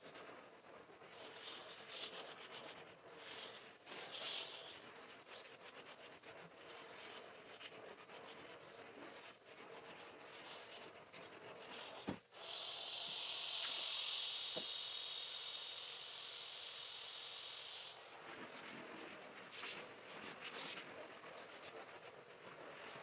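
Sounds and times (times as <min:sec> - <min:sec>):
cleaning spray hissing: 0:12.3 - 0:18.0, 0:19.4 - 0:20.9.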